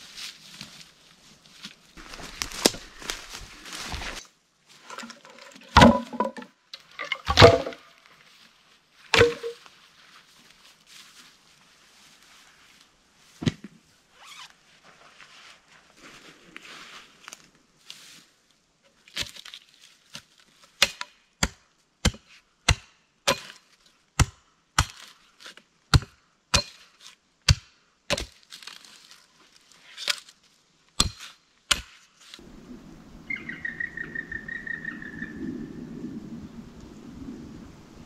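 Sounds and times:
axe chopping wood: 7.3s - 7.8s, 9.2s - 9.6s, 20.8s - 23.6s, 24.2s - 25.0s, 25.9s - 26.8s, 27.4s - 28.4s, 31.0s - 31.9s
low wind rumble: 32.4s - 38.0s
bird trilling call: 33.2s - 35.8s.

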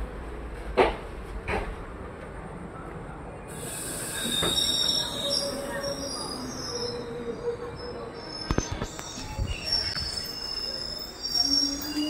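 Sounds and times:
train wheels squealing: 3.5s - 12.0s.

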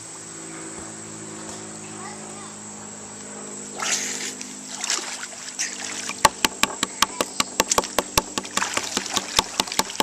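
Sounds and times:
water lapping and splashing: 3.8s - 6.4s, 7.8s - 10.0s.

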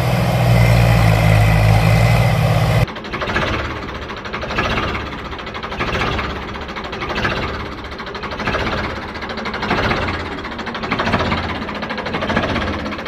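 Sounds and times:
engine chugging: 0.0s - 13.0s.

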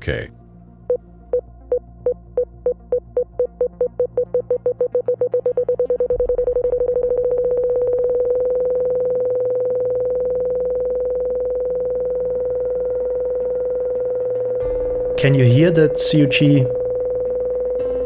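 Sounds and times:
synthesized beeps: 2.1s - 10.6s
low synth drone: 5.4s - 18.0s.

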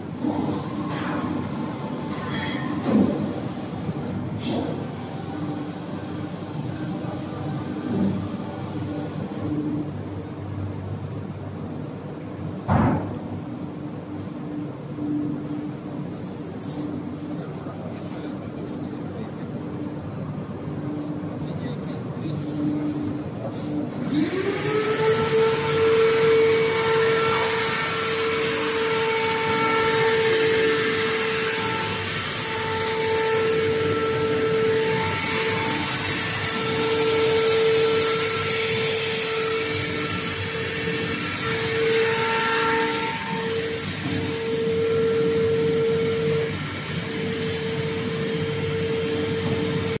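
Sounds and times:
electric motor whine: 24.1s - 50.0s.

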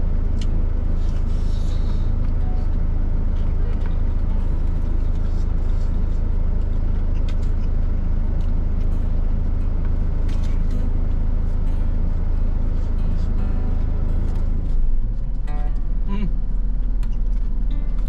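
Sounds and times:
truck engine idling: 0.0s - 18.0s.

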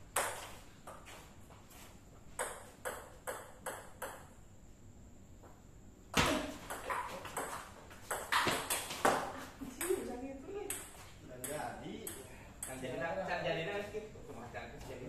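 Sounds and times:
hard table tennis hit: 2.4s - 4.3s, 6.2s - 10.0s.

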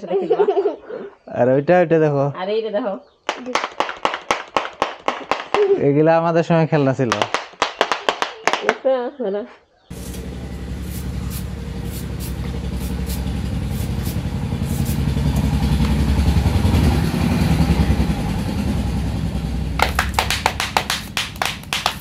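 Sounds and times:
motor engine rumbling: 9.9s - 22.0s.

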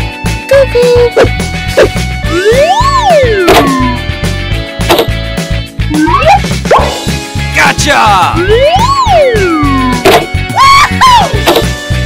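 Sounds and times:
bouncy children's music: 0.0s - 12.0s
rising and falling tone: 2.3s - 4.0s, 5.9s - 6.9s.

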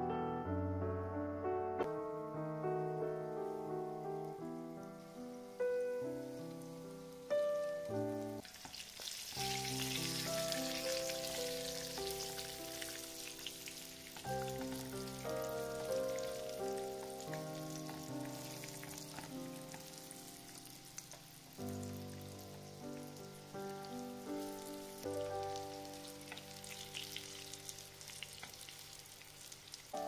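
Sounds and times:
background music: 0.0s - 28.9s
croquettes sizzling in oil: 4.2s - 30.0s.

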